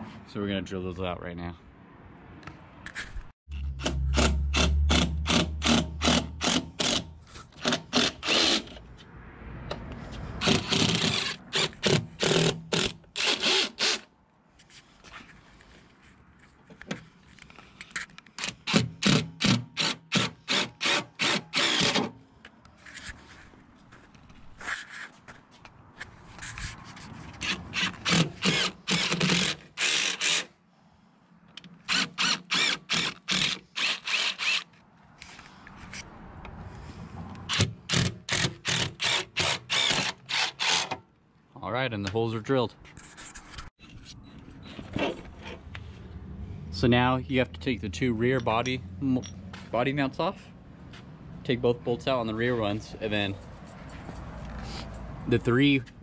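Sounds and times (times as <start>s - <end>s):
cordless drill boring through steel: 7.6s - 8.8s, 10.4s - 14.1s, 19.4s - 22.1s, 27.8s - 30.5s, 31.9s - 34.7s, 37.5s - 41.0s.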